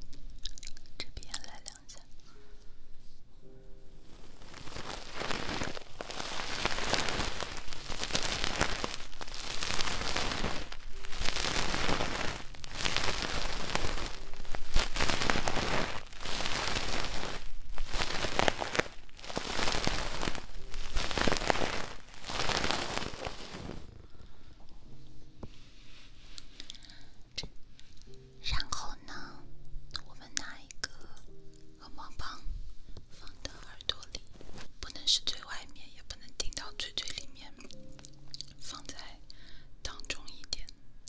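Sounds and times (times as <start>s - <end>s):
scratching inside microphone ear: 4.0s - 24.0s, 33.1s - 35.4s.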